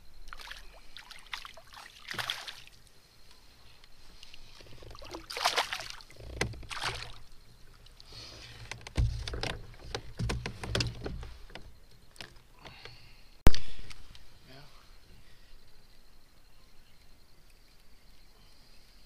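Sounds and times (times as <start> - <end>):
water splashing: 0.3 - 2.8, 4.8 - 8.0
low thump on hull: 8.8 - 11.7
fish knocking in plastic kayak: 8.8 - 12.3.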